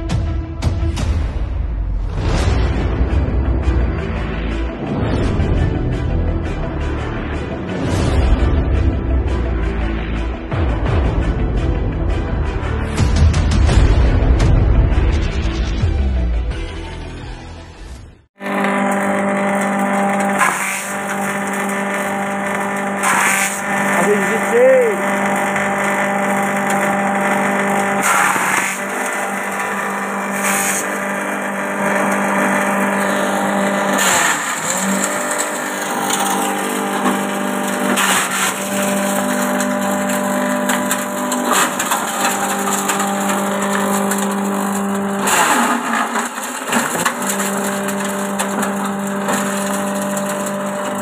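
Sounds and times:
electric motor humming: 18.4 - 51.0.

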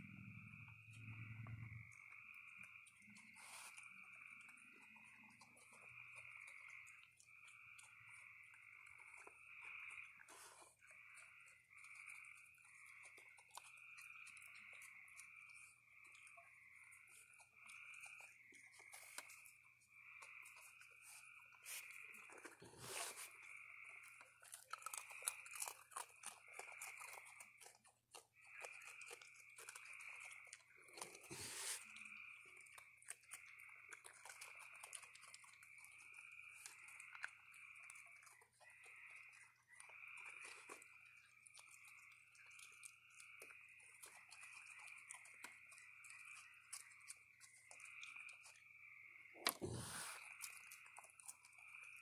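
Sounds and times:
night chorus trilling: 0.0 - 27.7
raccoons crunching dry food: 0.0 - 52.0.

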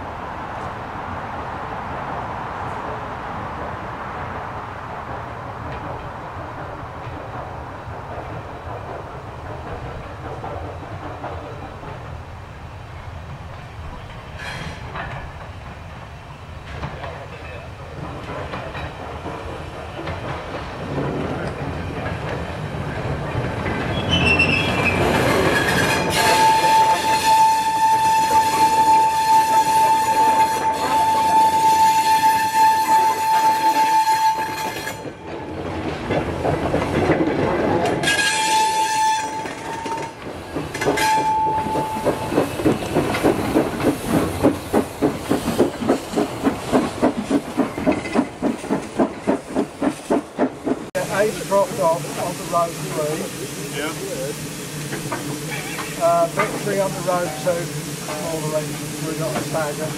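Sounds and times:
train passing: 0.0 - 59.9
steam locomotive exhaust beats: 17.8 - 59.9
high-pitched train tone: 23.9 - 35.5, 38.0 - 40.2, 40.8 - 42.5.

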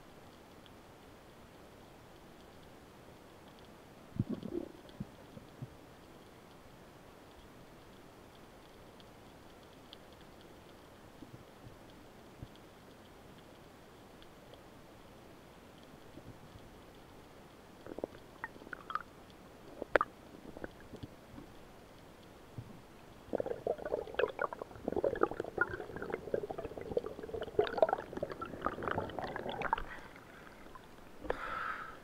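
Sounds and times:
crackling water noise: 0.0 - 32.0
underwater gurgling and bubbling: 4.2 - 5.2, 17.8 - 19.1, 19.7 - 21.5, 23.2 - 31.2.

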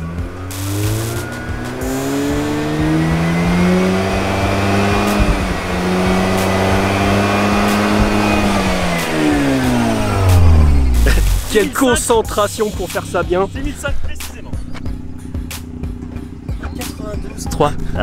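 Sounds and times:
rotary engine revving: 0.0 - 11.8.

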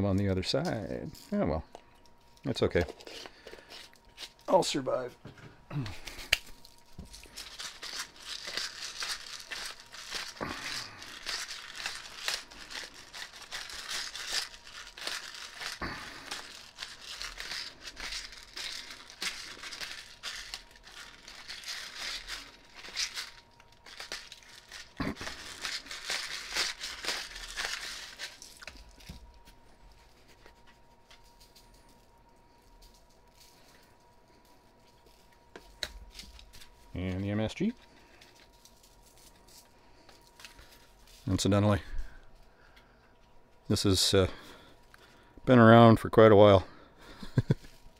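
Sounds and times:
spice grinder grinding: 6.0 - 29.5.

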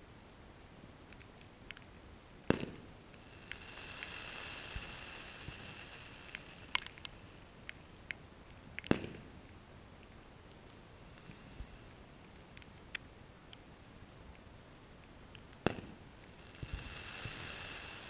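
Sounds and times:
faint high-pitched hiss: 0.0 - 18.0
firework pops and crackles: 1.2 - 13.7, 14.3 - 18.0
distant firework bangs: 2.5 - 6.5, 8.9 - 9.3, 15.6 - 18.0.

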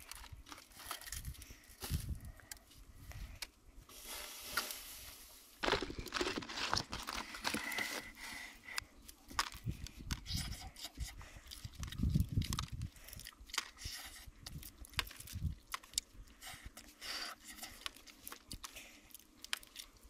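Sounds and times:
leaves rustling and scraping: 3.8 - 8.2.

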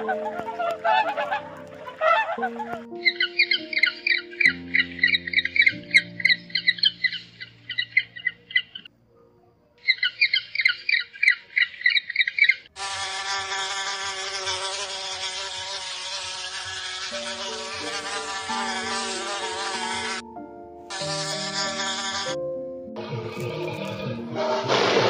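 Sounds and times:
flies and wasp buzzing: 0.0 - 8.0, 12.7 - 20.2, 20.9 - 22.4, 23.0 - 25.0
penguin chick chirping: 0.0 - 8.9, 9.8 - 12.7.

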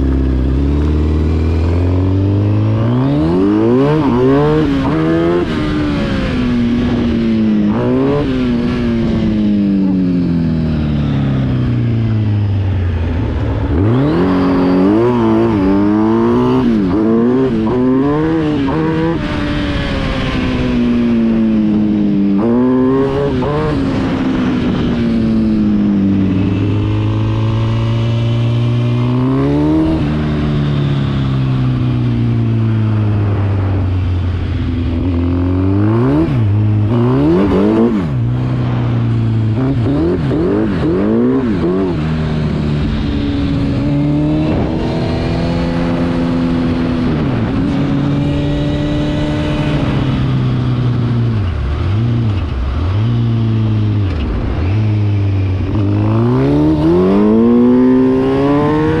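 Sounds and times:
quad engine revving: 0.0 - 10.1, 13.3 - 19.4, 35.1 - 50.2, 55.7 - 59.0.

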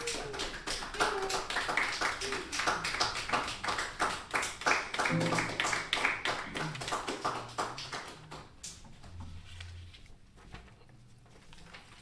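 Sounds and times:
people clapping: 0.0 - 9.1
low held notes: 5.1 - 6.0.

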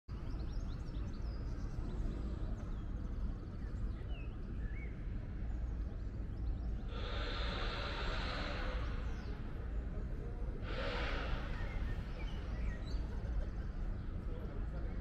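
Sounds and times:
faint bird chirps: 0.1 - 15.0
low city rumble: 0.1 - 15.0
hiss: 6.9 - 13.2.

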